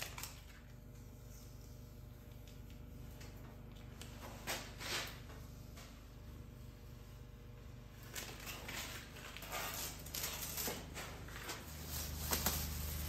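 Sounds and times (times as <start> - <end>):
tape peeling crackle: 0.0 - 0.9, 8.0 - 13.0
low steady hum: 0.0 - 13.0.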